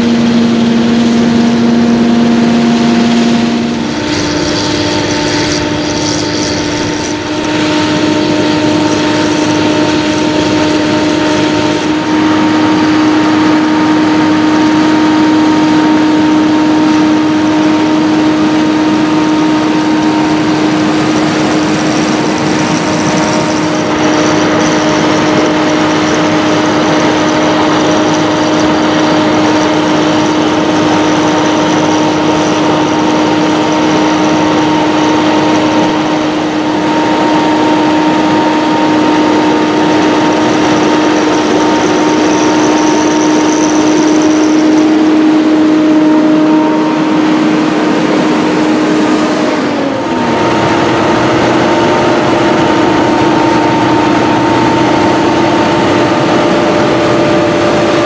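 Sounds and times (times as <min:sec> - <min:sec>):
tractor diesel engine droning: 0:00.0 - 0:58.0.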